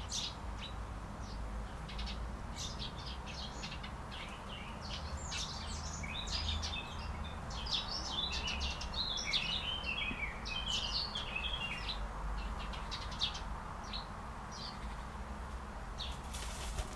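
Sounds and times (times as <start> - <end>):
small birds chirping: 0.0 - 16.9.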